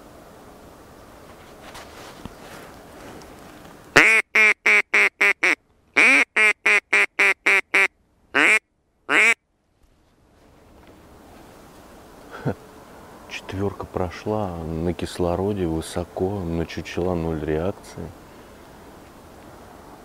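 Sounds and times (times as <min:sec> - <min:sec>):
duck call quacks: 0:04.0 - 0:09.4.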